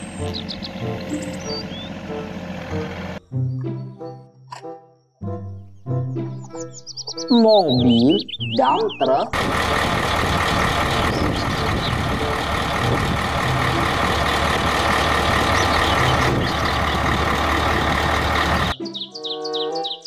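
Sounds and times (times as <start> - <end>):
diesel truck engine running: 0.0 - 3.2, 9.0 - 18.8.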